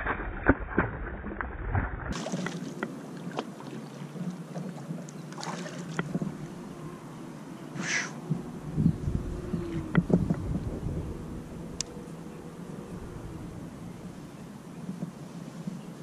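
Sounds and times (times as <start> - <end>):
water moving against hull: 1.8 - 16.0
fish splashing at surface: 2.1 - 3.8, 5.3 - 6.2.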